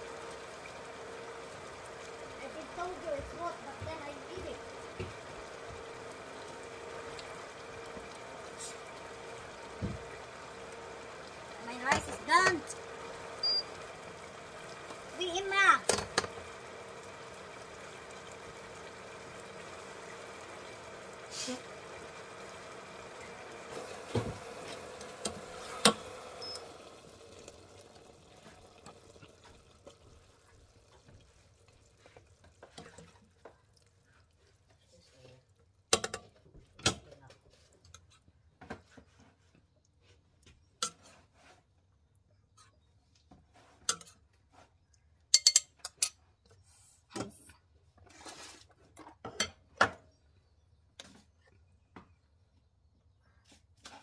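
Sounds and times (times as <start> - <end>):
spoons clattering on pot: 45.3 - 46.1.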